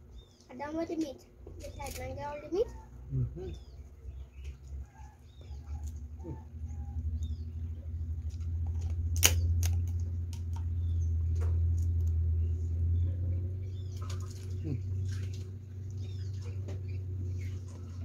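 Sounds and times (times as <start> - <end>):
low steady rumble: 0.0 - 18.0
crab shell cracking: 8.3 - 10.7.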